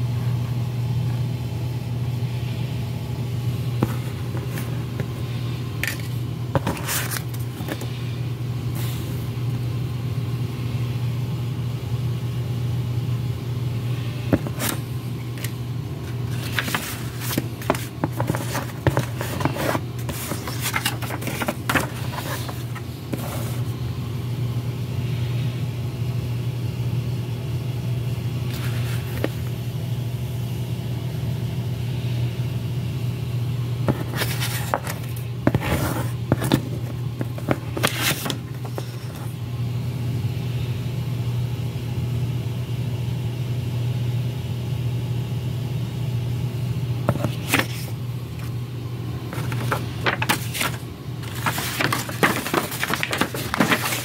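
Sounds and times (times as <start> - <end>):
low machine hum: 0.0 - 54.0
paper rustling and crinkling: 3.8 - 8.0, 14.4 - 23.7, 28.5 - 29.5, 33.9 - 39.4, 47.1 - 48.5, 49.3 - 54.0.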